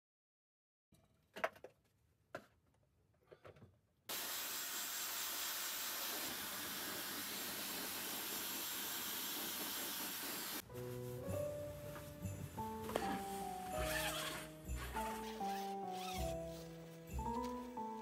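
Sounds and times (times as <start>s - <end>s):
hair dryer blowing: 4.1s - 10.6s.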